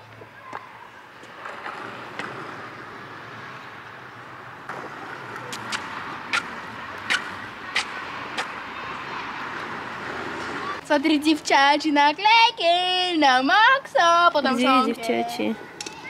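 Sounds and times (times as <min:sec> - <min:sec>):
skateboard wheels rolling on asphalt: 0:00.0 - 0:10.9.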